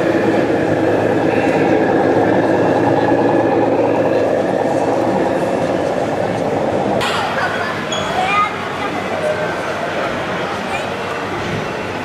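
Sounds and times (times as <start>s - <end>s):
model truck diesel engine sound: 0.0s - 7.0s.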